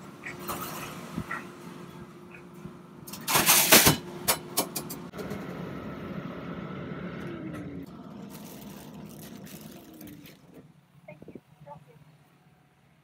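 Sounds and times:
ice machine humming: 3.1 - 11.0.

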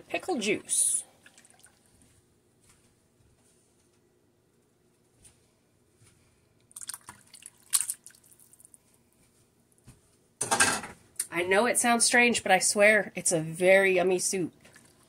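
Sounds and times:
liquid sloshing and dripping: 1.1 - 2.2, 6.6 - 8.9, 14.5 - 15.0.

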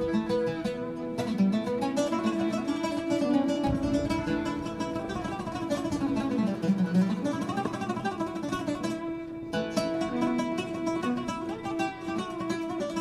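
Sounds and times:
plucked acoustic guitar music: 0.0 - 13.0.

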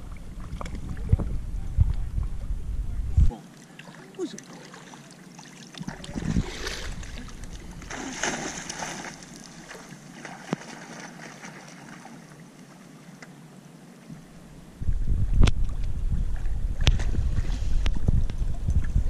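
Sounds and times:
dog splashing through water: 7.9 - 12.1.

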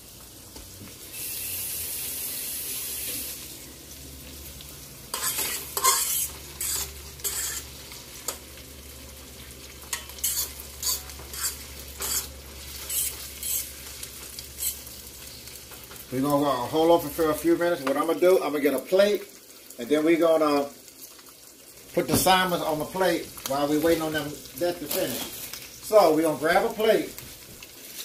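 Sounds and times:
steady hiss: 0.0 - 3.7
onions sizzling in a skillet: 0.0 - 28.0
scraping in a pan: 5.1 - 8.4, 9.8 - 14.9.

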